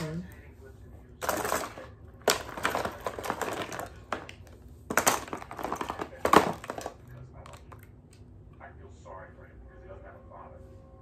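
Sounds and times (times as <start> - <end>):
plastic containers clattering: 1.2 - 7.9.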